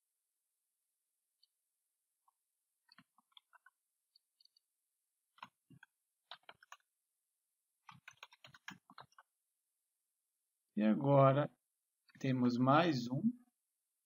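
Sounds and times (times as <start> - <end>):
keyboard and mouse clicks: 2.2 - 4.7, 5.3 - 6.9, 7.8 - 9.4.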